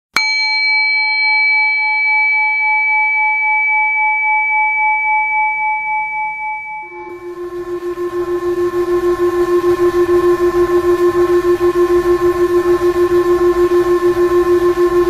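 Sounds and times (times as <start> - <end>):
singing bowl ringing: 0.2 - 15.0
low wavering tone with hiss: 3.4 - 15.0.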